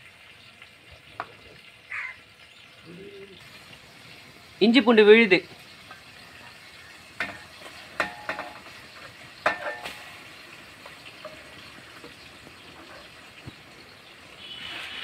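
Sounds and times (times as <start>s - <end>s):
paste sizzling in hot oil: 0.0s - 15.0s
steel bowl knocking on metal pot: 7.2s - 8.7s, 9.4s - 10.2s.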